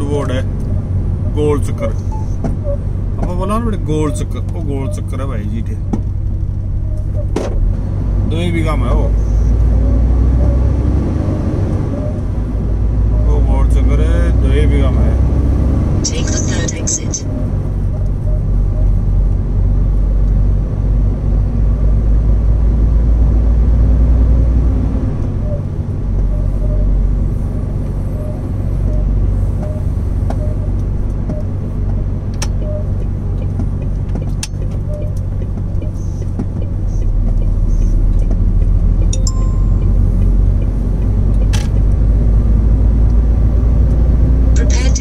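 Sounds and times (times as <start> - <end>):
vehicle engine hum: 0.0 - 45.0.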